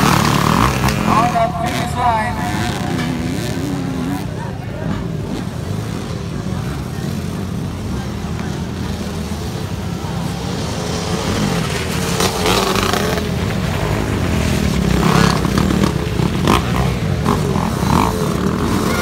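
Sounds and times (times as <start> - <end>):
dirt bike engines revving: 0.0 - 19.0.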